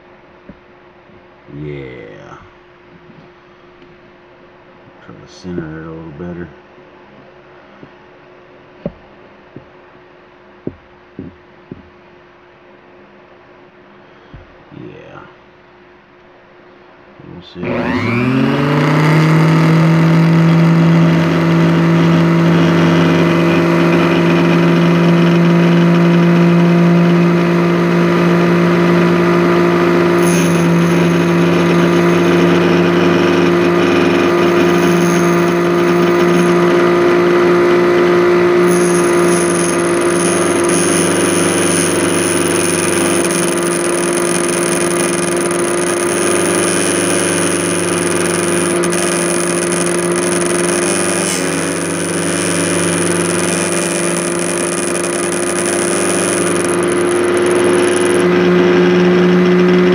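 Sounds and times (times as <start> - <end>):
electric motor whining: 17.6 - 59.9.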